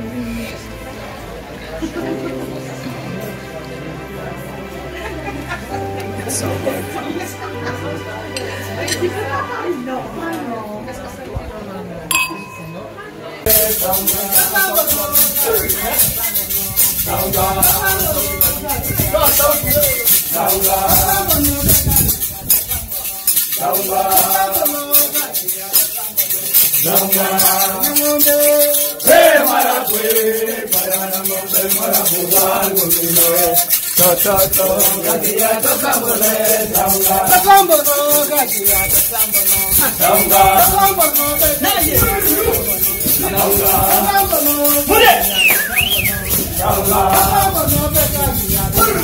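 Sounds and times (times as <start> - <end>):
group of people singing: 13.4 - 49.0
plastic shakers rattling: 13.5 - 49.0.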